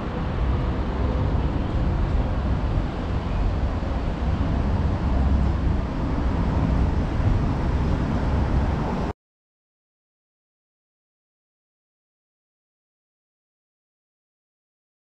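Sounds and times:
low rumble of outdoor background noise: 0.0 - 9.1.

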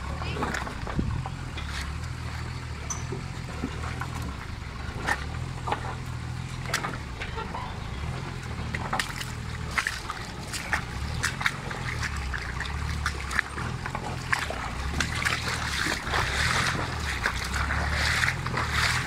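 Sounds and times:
truck engine running low: 0.0 - 19.0
water splashing around wheels: 0.0 - 19.0
tyres crunching over stones: 8.0 - 19.0.

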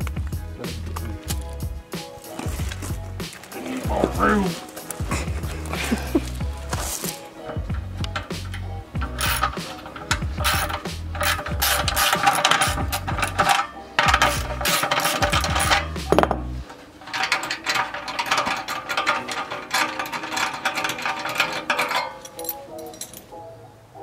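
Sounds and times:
background music: 0.0 - 24.0
ratchet wrench clicking: 8.0 - 16.2.

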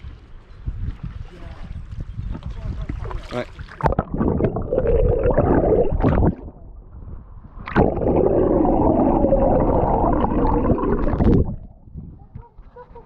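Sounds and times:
muffled underwater river rushing: 2.3 - 12.0
water splash: 7.6 - 11.6.

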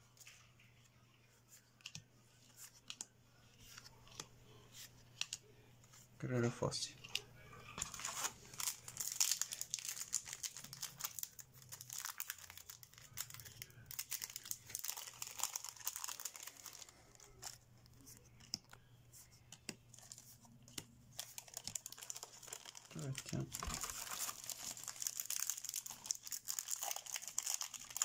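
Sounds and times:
cards clicking and rustling: 1.7 - 5.4, 7.0 - 18.8, 19.4 - 28.0
foil pack crinkling and tearing: 7.8 - 17.6, 21.1 - 28.0.

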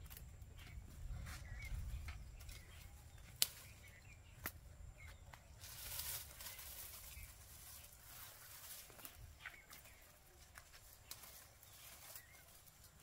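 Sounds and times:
vines and leaves rustling: 0.0 - 13.0
vine snapping: 3.3 - 3.7.

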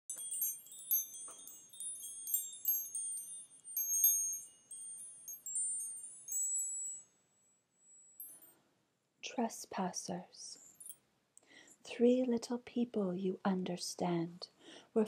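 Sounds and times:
wind chimes tinkling: 0.1 - 7.2, 7.8 - 8.6, 10.7 - 11.0.

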